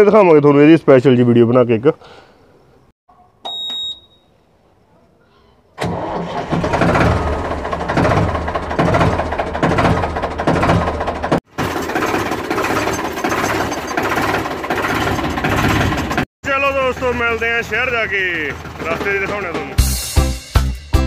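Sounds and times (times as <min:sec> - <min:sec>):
tractor engine running: 0:05.8 - 0:20.0.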